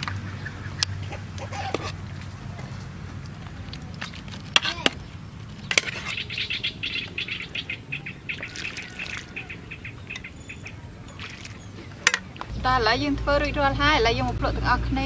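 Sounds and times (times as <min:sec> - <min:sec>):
small birds chirping: 0:02.4 - 0:13.0.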